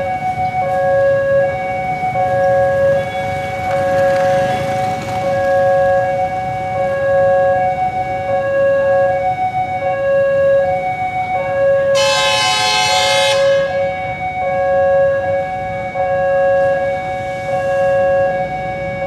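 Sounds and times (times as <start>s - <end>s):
level crossing alarm wailing: 0.0s - 19.0s
train horn blast: 11.9s - 14.0s.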